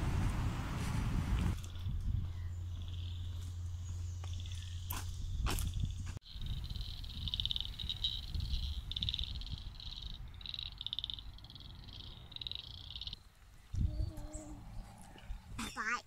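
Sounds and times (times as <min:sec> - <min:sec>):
wind rumble on microphone: 0:00.0 - 0:11.4, 0:13.6 - 0:15.6
frogs trilling: 0:02.7 - 0:03.5, 0:06.2 - 0:13.3.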